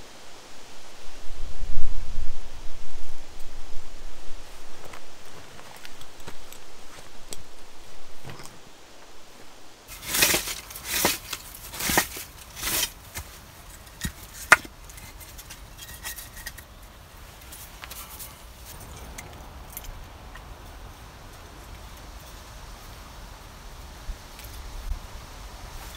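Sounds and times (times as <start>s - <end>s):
firewood scraping together: 8.2s - 20.5s.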